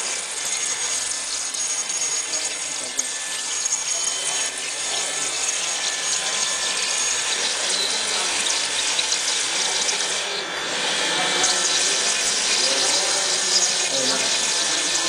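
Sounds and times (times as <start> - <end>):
coolant water hissing: 0.0 - 15.0.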